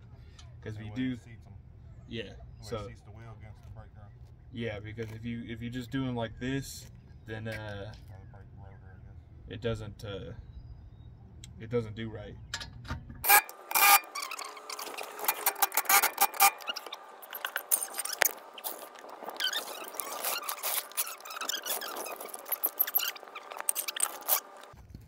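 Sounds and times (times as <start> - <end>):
tools clattering: 12.5 - 24.8
floor jack being worked: 13.2 - 24.8
sped-up impact wrench: 13.2 - 24.8.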